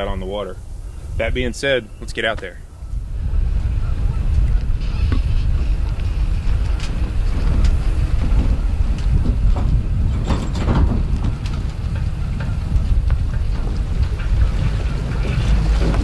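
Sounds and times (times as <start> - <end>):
wind buffeting the microphone: 0.0 - 16.0
short knocks or rattles: 9.2 - 16.0.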